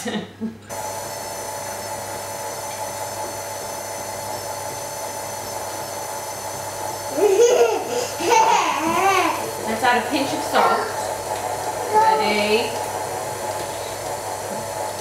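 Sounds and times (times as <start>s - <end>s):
stand mixer motor whine: 0.7s - 15.0s
child laughing and babbling: 7.1s - 9.6s, 10.4s - 11.1s.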